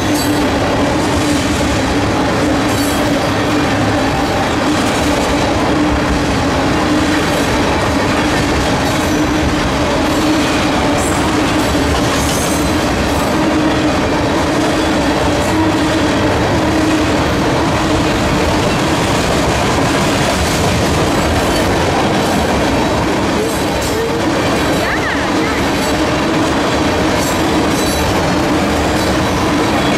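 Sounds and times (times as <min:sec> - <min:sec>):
train wheels rumbling on rails: 0:00.0 - 0:29.9
wheels clickety-clack over track: 0:00.0 - 0:29.9.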